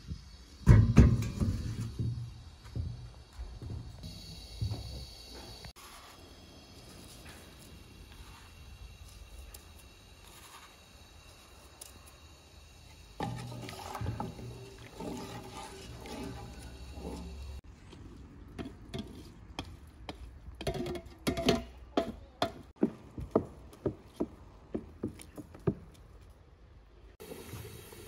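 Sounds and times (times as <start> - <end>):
wooden spoon stirring juice in a pot: 13.1 - 22.1.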